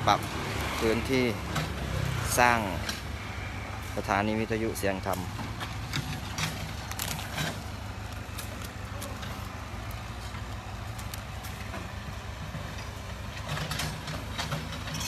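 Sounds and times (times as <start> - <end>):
diesel engine rumbling: 0.0 - 15.0.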